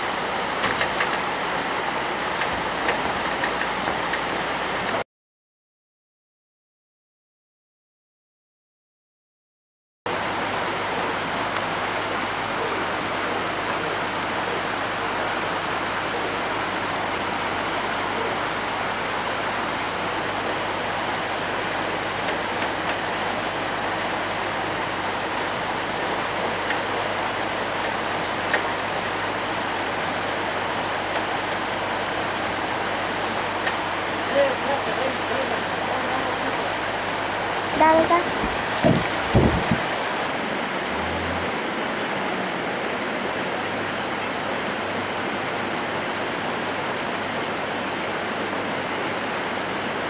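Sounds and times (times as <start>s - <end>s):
river rushing over boulders: 10.1s - 50.0s.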